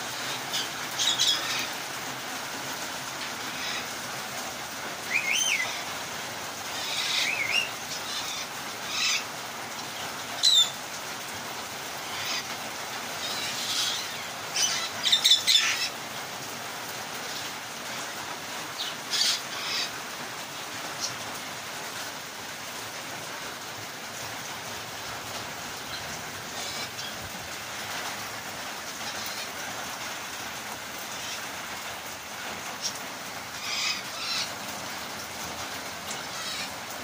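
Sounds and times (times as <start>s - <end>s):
rain falling: 0.0s - 37.0s
parrots squawking and chirping: 0.2s - 1.8s, 3.4s - 4.0s, 5.1s - 6.0s, 6.7s - 9.3s, 10.4s - 10.8s, 11.9s - 12.6s, 13.2s - 16.0s, 18.8s - 20.0s, 25.8s - 28.0s, 29.0s - 29.6s, 31.0s - 31.6s, 32.7s - 34.6s, 36.1s - 37.0s.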